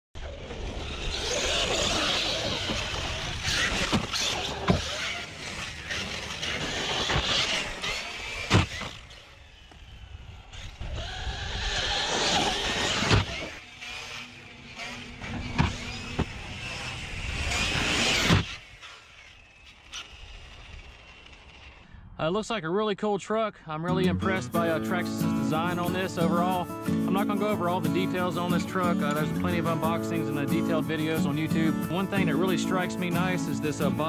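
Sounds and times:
electric motor whining: 0:00.2 - 0:21.9.

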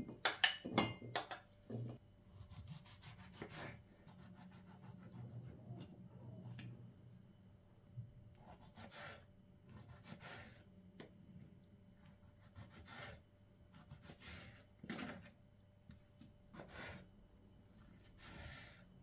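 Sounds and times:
knife slicing a tomato: 0:02.3 - 0:06.6, 0:08.4 - 0:10.7, 0:12.0 - 0:15.3, 0:16.2 - 0:17.1, 0:17.7 - 0:18.9.

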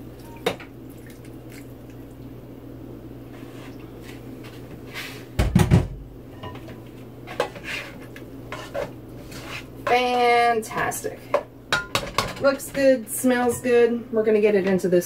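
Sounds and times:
spatula scraping in a pot: 0:07.2 - 0:10.8
cookware knocking: 0:11.3 - 0:13.7.

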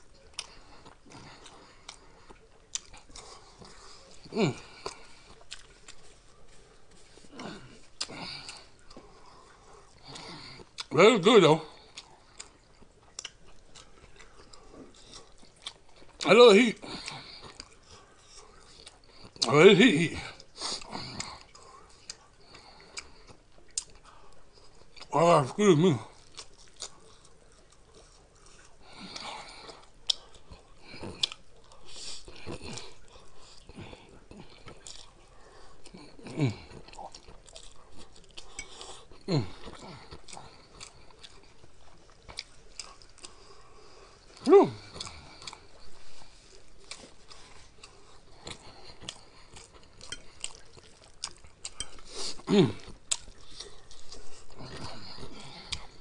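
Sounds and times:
wet chewing: 0:00.0 - 0:10.9, 0:11.6 - 0:19.6, 0:20.2 - 0:25.2, 0:26.0 - 0:56.0
short vocal sound: 0:44.4 - 0:44.8.

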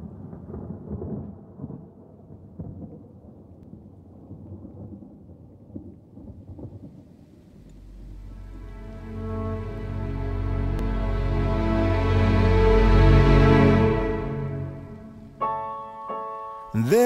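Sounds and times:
thunder rumbling: 0:00.0 - 0:09.4
rain: 0:00.0 - 0:15.4
low steady music tone: 0:07.7 - 0:17.0.

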